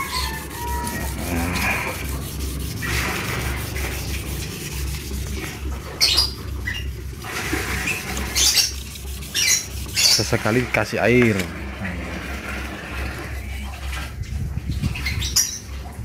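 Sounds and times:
short high squeaks: 0.0s - 1.7s, 7.7s - 10.6s
sandpaper rubbing strokes: 0.0s - 13.4s.

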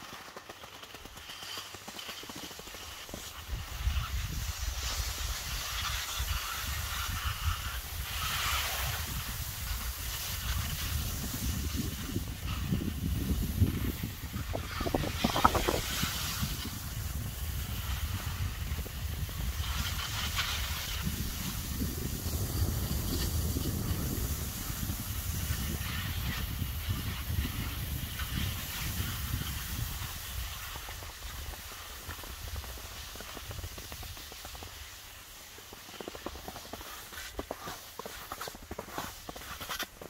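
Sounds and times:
skis scraping over snow: 0.0s - 40.0s
wind buffeting microphone: 3.4s - 34.4s.

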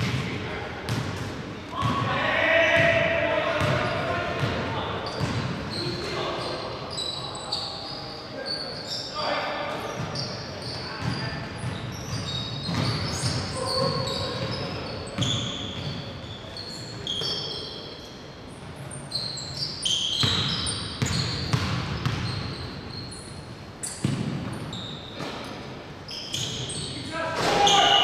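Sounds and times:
basketball bouncing on court: 0.0s - 5.7s, 11.0s - 16.0s, 20.2s - 22.7s, 24.0s - 25.4s
sneaker squeaks on floor: 3.6s - 28.0s.

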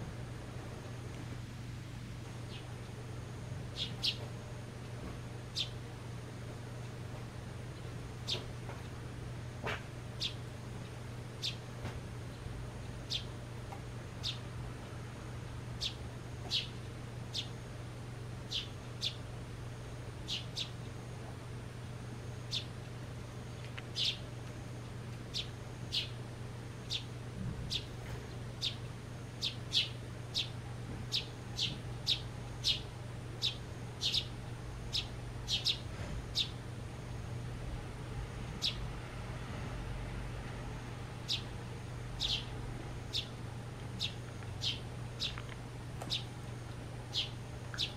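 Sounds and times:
low steady hum: 0.0s - 47.9s
sparrow chirping: 2.5s - 2.7s, 3.7s - 4.3s, 5.5s - 5.8s, 7.8s - 8.5s, 10.2s - 10.4s, 11.4s - 11.6s, 13.0s - 13.3s, 14.2s - 14.5s, 15.8s - 17.6s, 18.4s - 19.2s, 20.2s - 20.8s, 22.4s - 22.7s, 23.9s - 24.2s, 25.3s - 26.2s, 26.8s - 27.1s, 27.7s - 27.9s, 28.6s - 36.6s, 38.6s - 38.8s, 41.2s - 41.5s, 42.2s - 43.4s, 44.0s - 45.4s, 46.1s - 46.4s, 47.1s - 47.9s.

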